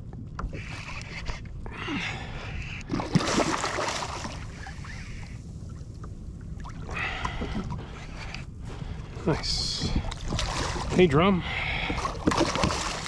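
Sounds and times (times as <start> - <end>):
wind rumble on microphone: 0.0 - 13.0
water splashing against kayak hull: 2.9 - 5.2, 6.0 - 13.0.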